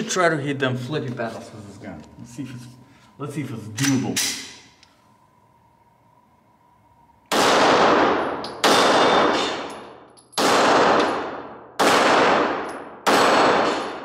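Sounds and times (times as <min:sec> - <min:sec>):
pistol shots echoing: 0:07.3 - 0:14.0.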